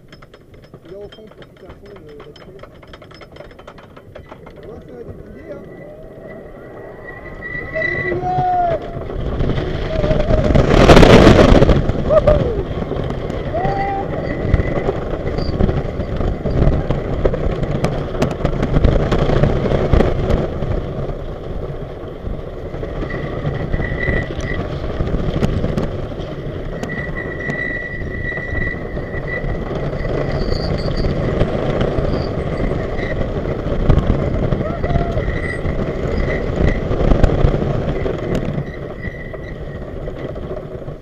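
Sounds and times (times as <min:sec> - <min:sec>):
roller coaster wheels clattering on track: 0:00.0 - 0:41.0
thin high tone: 0:05.2 - 0:08.4.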